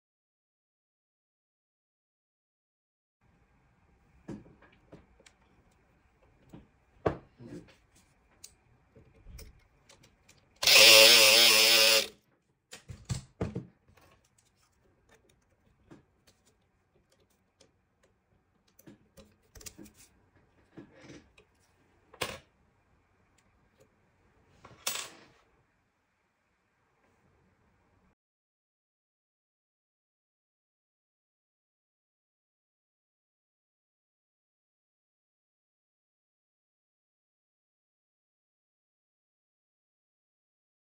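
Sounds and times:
pick gun buzzing: 10.6s - 12.1s.

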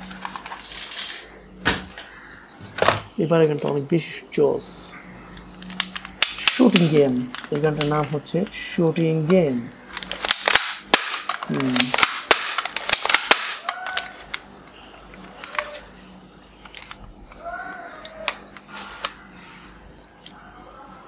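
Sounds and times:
toy shotgun plastic clicking: 5.2s - 8.5s, 9.3s - 14.4s.

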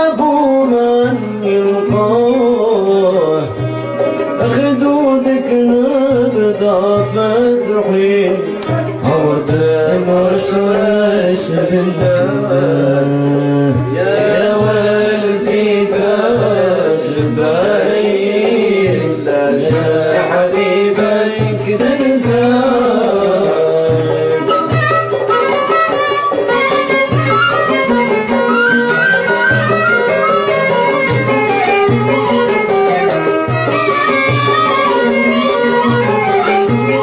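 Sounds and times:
music ensemble playing melody: 0.0s - 37.0s
percussion beat: 0.0s - 37.0s.

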